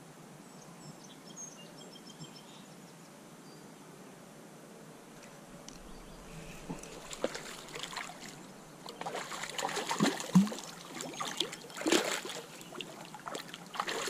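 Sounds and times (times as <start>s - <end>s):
fish splashing in water: 5.8s - 14.0s.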